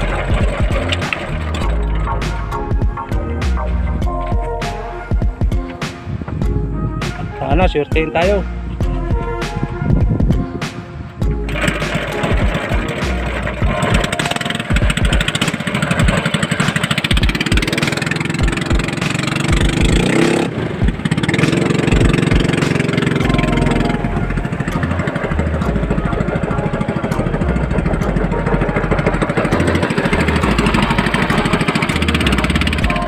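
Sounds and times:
small boat engine running: 0:00.0 - 0:03.0, 0:11.2 - 0:33.0.

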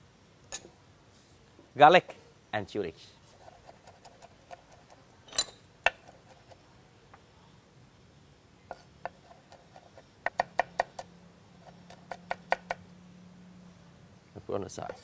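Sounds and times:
cleaver chopping on wooden board: 0:11.9 - 0:12.8.

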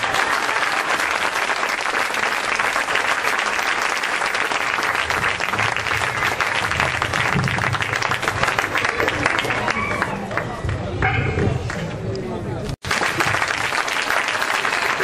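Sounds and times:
crowd applauding: 0:00.0 - 0:10.8, 0:12.8 - 0:15.0.

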